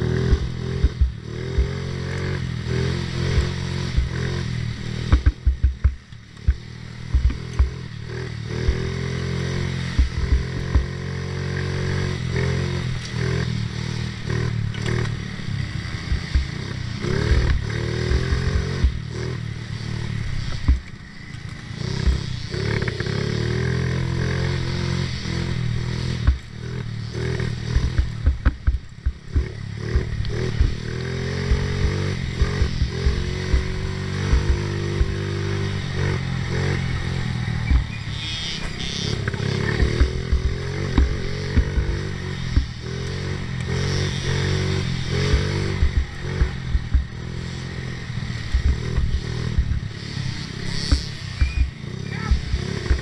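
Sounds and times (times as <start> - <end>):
small engine revving: 0.0 - 53.0
knocks and rattles over bumps: 5.0 - 7.9, 10.0 - 11.0, 20.5 - 21.0, 27.8 - 35.4, 39.1 - 42.8.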